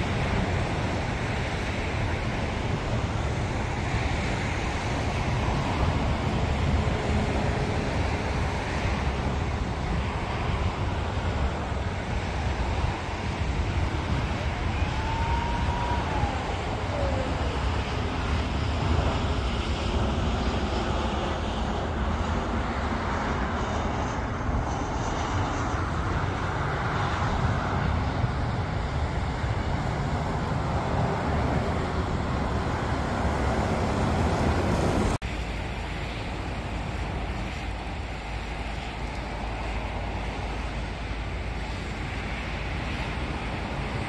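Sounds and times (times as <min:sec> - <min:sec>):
jet engine roar: 0:00.0 - 0:44.0.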